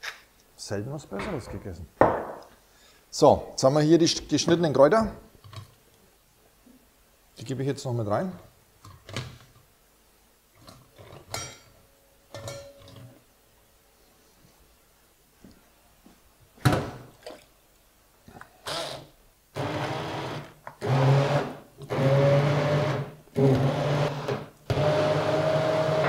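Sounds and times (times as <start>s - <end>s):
knocks: 2.0s - 2.5s
blender motor running: 19.6s - 26.0s.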